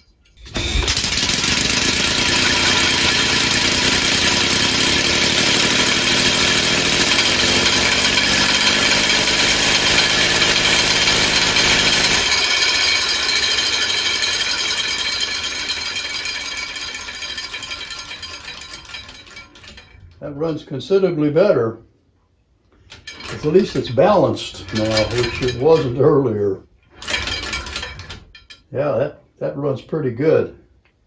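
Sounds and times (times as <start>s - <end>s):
compressed-air engine running: 0.4s - 13.8s.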